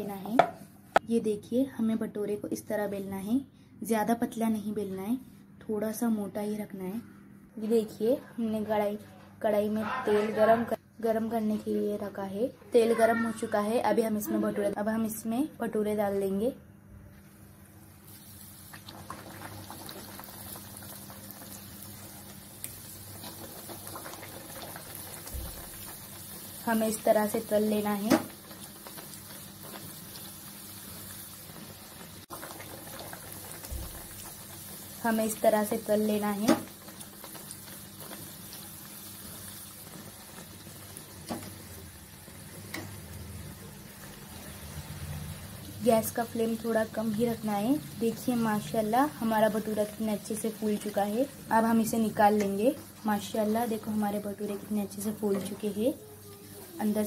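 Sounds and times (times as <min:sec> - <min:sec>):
metal spatula knocking on pan: 0:00.4 - 0:00.6
dough sizzling in hot oil: 0:17.6 - 0:57.0.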